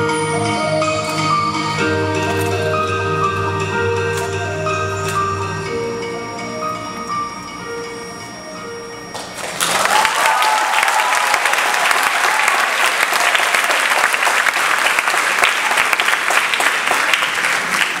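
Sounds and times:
dance music: 0:00.0 - 0:09.7
audience applauding: 0:09.1 - 0:18.0
audience cheering: 0:09.4 - 0:18.0.

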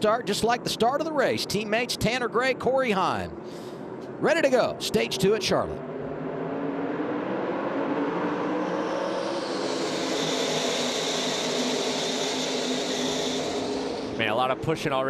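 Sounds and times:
pack of racing trucks droning: 0:03.1 - 0:15.0.

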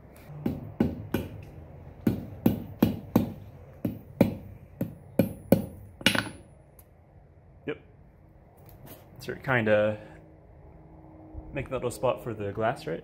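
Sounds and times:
hammer striking metal on anvil: 0:00.4 - 0:06.6.

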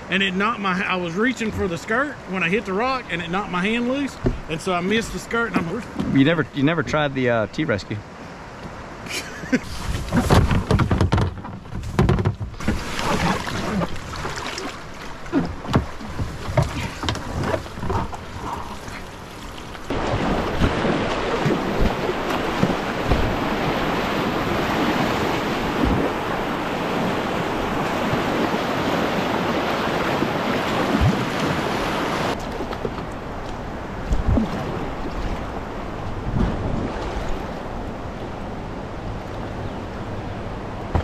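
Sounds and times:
kayak knocks and bumps: 0:04.2 - 0:04.6, 0:05.6 - 0:06.2, 0:09.8 - 0:18.4, 0:19.8 - 0:33.2, 0:34.0 - 0:37.3
whitewater rapid rushing: 0:18.8 - 0:32.4.

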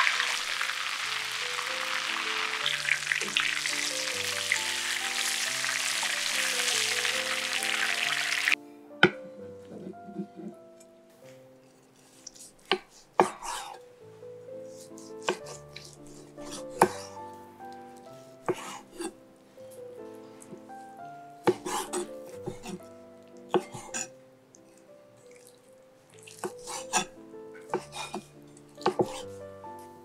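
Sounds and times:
soft background music: 0:00.0 - 0:30.0.

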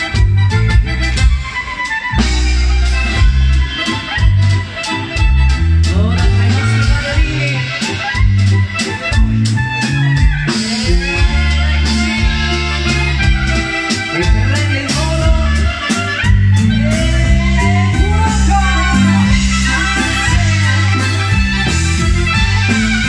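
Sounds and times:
accordion: 0:00.0 - 0:23.0
live dance band music: 0:00.0 - 0:23.0
clarinet: 0:15.3 - 0:23.0.

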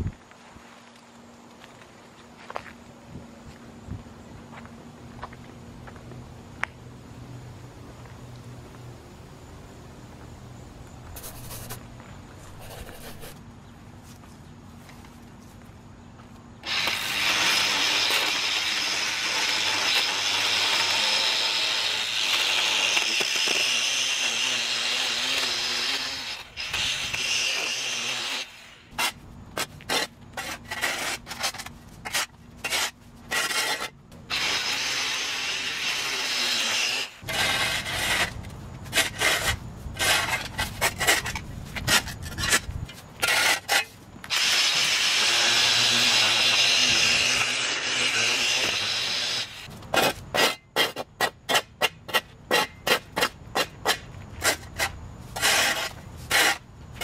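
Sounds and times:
edger blade scraping concrete: 0:11.2 - 0:11.8, 0:12.4 - 0:13.4, 0:16.6 - 0:57.0
shovel scraping on concrete: 0:11.2 - 0:11.8, 0:12.4 - 0:13.4, 0:16.6 - 0:57.0.

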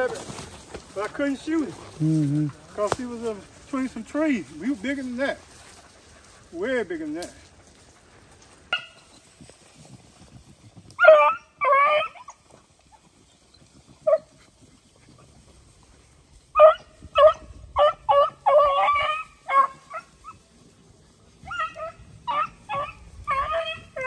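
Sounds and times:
beagles giving high cries: 0:11.0 - 0:12.4, 0:16.5 - 0:20.4, 0:21.4 - 0:24.0.

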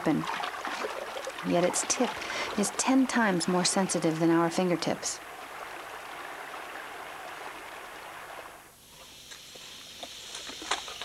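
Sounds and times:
water sloshing and splashing: 0:00.0 - 0:08.7
faint hiss: 0:01.4 - 0:11.0.

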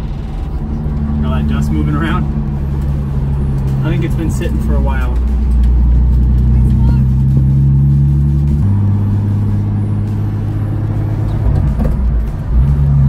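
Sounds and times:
car engine running heard inside: 0:00.0 - 0:13.0.

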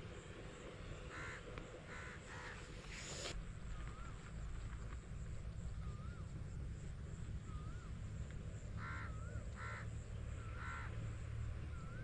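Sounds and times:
crows cawing: 0:01.1 - 0:02.7, 0:08.8 - 0:11.0.

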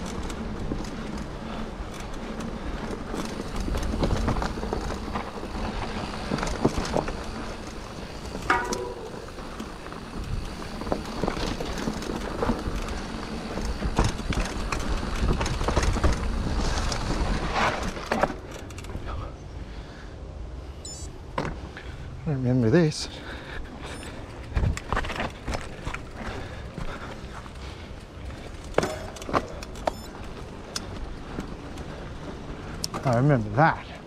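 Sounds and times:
bike tyres rumbling on dirt: 0:00.0 - 0:19.2, 0:23.2 - 0:34.0
chain and frame rattling: 0:28.3 - 0:30.1.

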